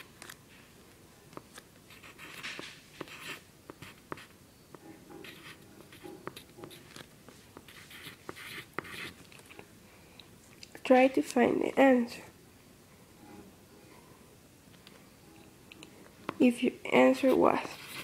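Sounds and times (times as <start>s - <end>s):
pen scratching on paper: 1.9s - 4.3s, 5.0s - 9.2s, 17.1s - 18.0s.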